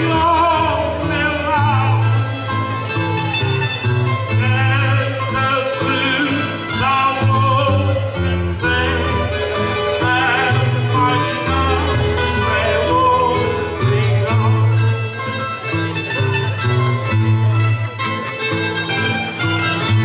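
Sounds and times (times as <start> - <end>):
man singing at a microphone: 0.0 - 2.7, 4.1 - 15.6
plucked guitar and mandolin: 0.0 - 20.0.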